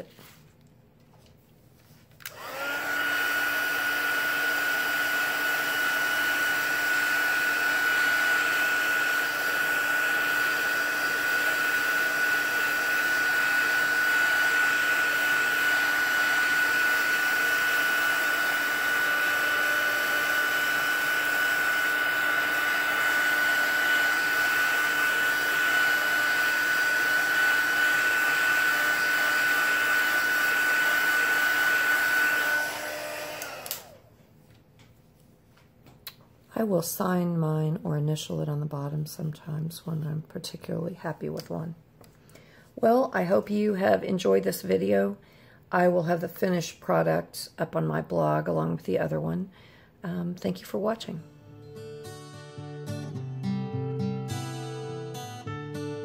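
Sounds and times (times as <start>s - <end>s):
heat gun whirring: 2.2s - 34.1s.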